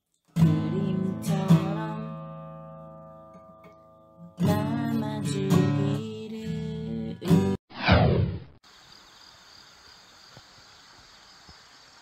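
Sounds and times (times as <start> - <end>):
acoustic guitar strumming: 0.4 - 7.6.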